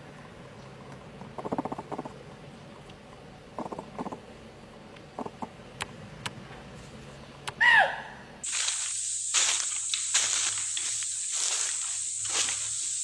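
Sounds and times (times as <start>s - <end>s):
sharp ticks: 0.9s - 2.2s, 3.6s - 4.2s, 5.0s - 6.4s
animal chattering clicks: 1.3s - 2.2s, 3.6s - 4.2s, 5.2s - 5.5s.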